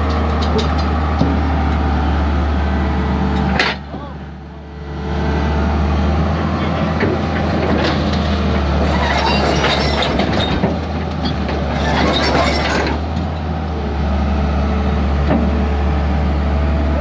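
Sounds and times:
diesel engine running: 0.0 - 17.0
steel track chain clanking and squealing: 7.7 - 13.1.

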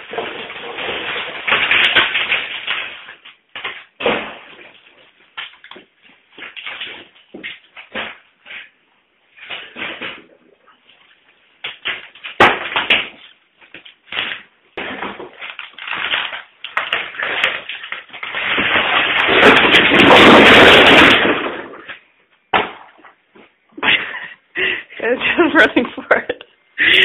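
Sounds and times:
crash of falling debris: 0.0 - 8.7, 11.6 - 23.0.

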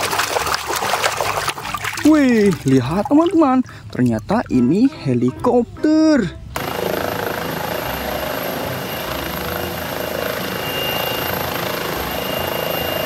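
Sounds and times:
turbine whine: 6.1 - 13.0
helicopter rotor noise: 6.2 - 13.0.

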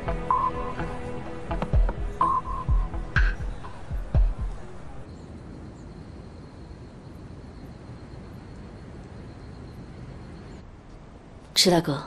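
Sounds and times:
crickets trilling: 5.0 - 10.7.

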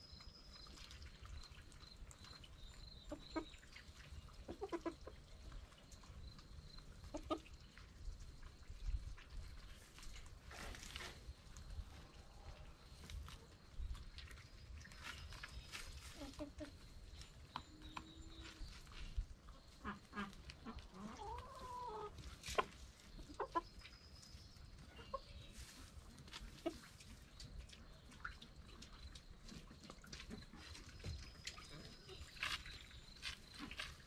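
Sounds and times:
hens clucking: 3.0 - 7.8, 15.0 - 34.0.

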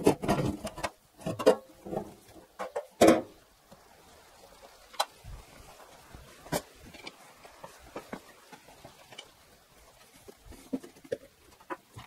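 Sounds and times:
objects knocking and clicking: 0.0 - 3.4, 10.2 - 12.0.

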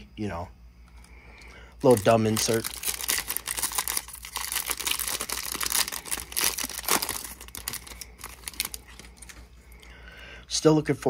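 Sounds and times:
foil wrapper crinkling and tearing: 1.8 - 9.5.

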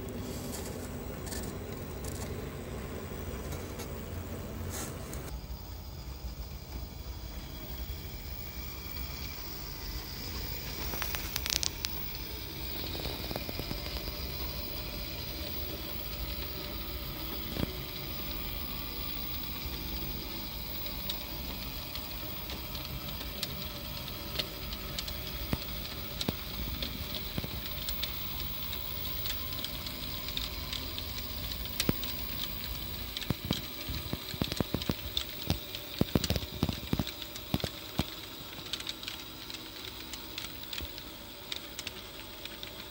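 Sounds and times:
model train motor hum: 0.0 - 38.2.

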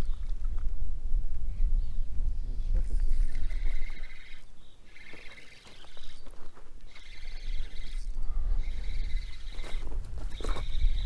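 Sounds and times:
wind rumble on microphone: 0.0 - 4.6, 7.2 - 11.0
spinning reel whirring: 6.9 - 11.0.

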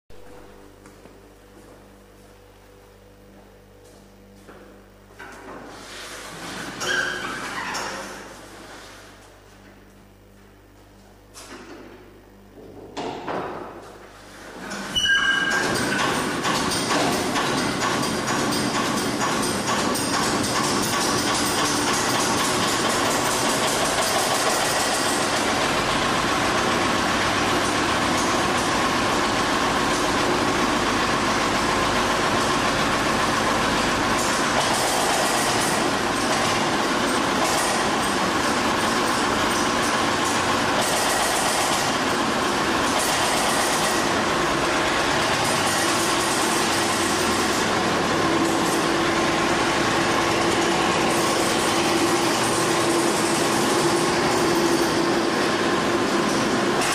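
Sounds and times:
steady hum: 0.1 - 15.0
dumper engine running: 15.6 - 56.9.

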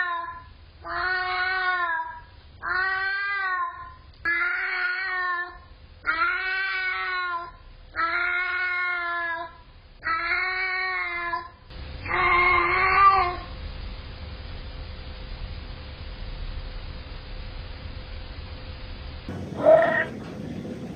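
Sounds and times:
cat yowling: 0.0 - 11.4, 19.6 - 20.2.

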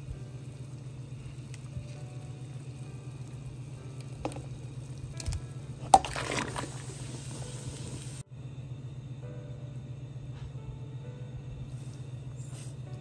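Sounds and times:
broth bubbling at the boil: 0.0 - 8.2.

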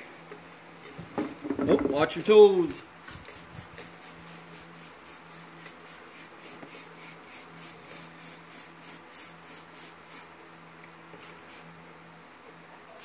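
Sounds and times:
spray bottle squirting: 3.0 - 10.3, 11.2 - 11.7.

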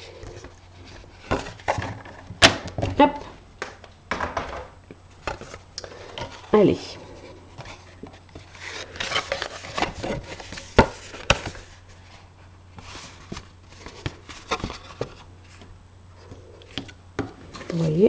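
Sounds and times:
paper rustling and scraping: 5.2 - 18.0.

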